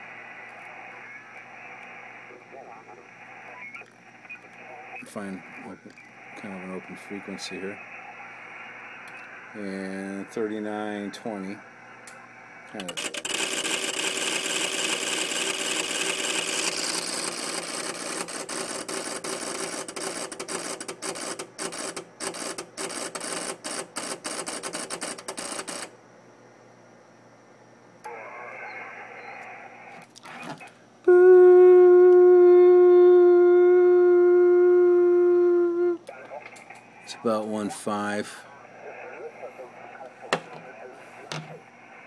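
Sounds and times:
loud steady pitched tone: 0:31.0 - 0:36.1.

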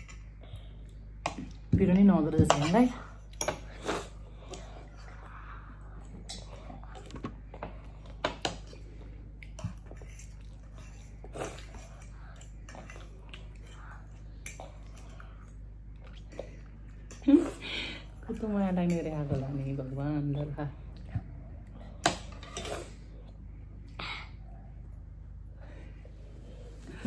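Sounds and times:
quiet chewing: 0:03.2 - 0:17.3.

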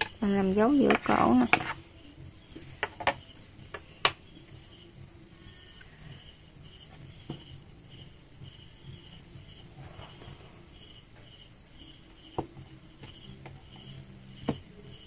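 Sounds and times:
crickets chirping: 0:00.0 - 0:15.0
taps and knocks on wooden table: 0:02.6 - 0:04.2, 0:14.4 - 0:14.7.

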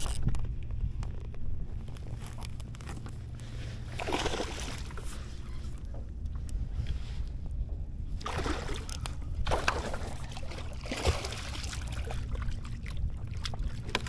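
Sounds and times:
steady low rumble: 0:00.0 - 0:14.0
water splashing around kayak hull: 0:02.9 - 0:06.0, 0:08.1 - 0:14.0.

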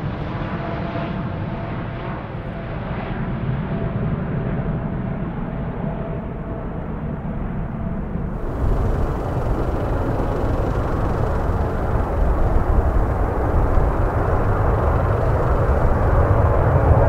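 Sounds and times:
jet engine rushing: 0:08.3 - 0:17.0
wind rumbling on microphone: 0:08.3 - 0:17.0.

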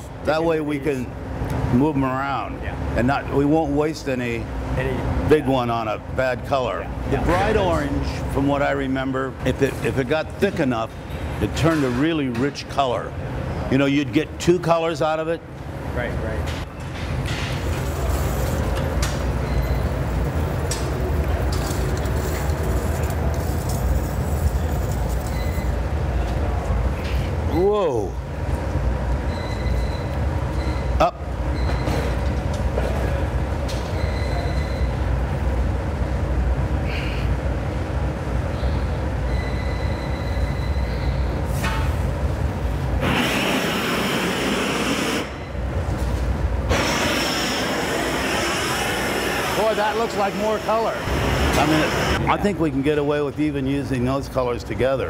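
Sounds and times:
gas burner roaring: 0:41.4 - 0:52.6
loud hiss: 0:43.0 - 0:45.4, 0:46.7 - 0:52.2.

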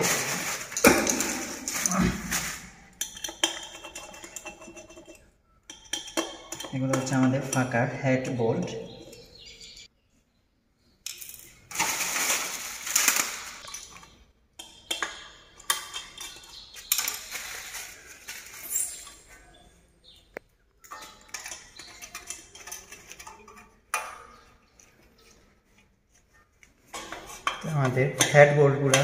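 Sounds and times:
plastic sheet rustling: 0:00.0 - 0:03.0, 0:11.5 - 0:13.8, 0:16.7 - 0:19.5
metal bolts and screwdriver clinking: 0:03.0 - 0:09.4, 0:13.6 - 0:17.4, 0:20.8 - 0:25.0.

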